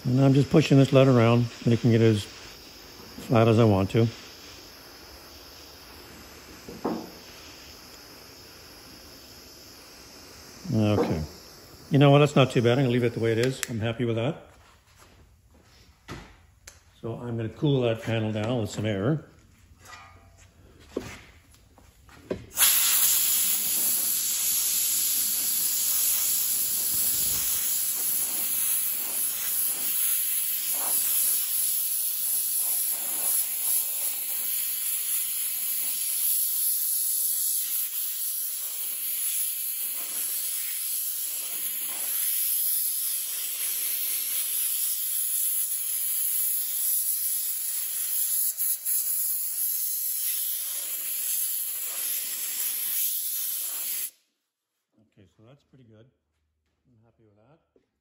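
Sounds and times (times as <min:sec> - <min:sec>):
air blow gun hissing: 0:00.0 - 0:14.0, 0:22.5 - 0:54.2.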